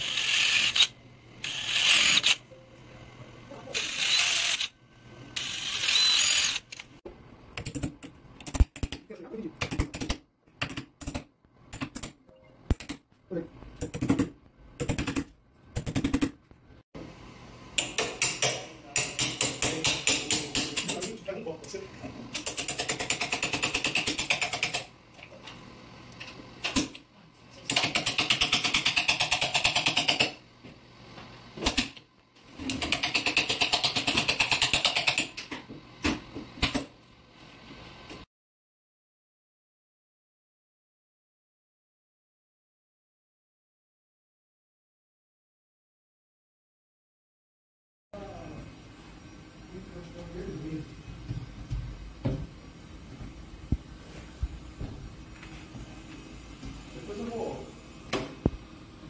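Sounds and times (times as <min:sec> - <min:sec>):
cordless drill drilling metal: 0:00.0 - 0:02.4, 0:03.7 - 0:04.7, 0:05.4 - 0:06.8.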